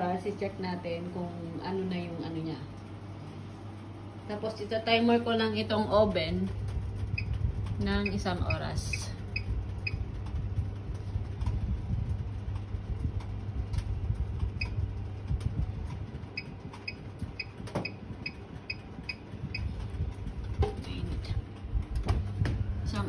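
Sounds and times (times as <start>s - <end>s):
steady low hum: 0.0s - 23.0s
oven control panel beeping: 7.1s - 10.1s, 14.4s - 15.1s, 16.3s - 19.8s.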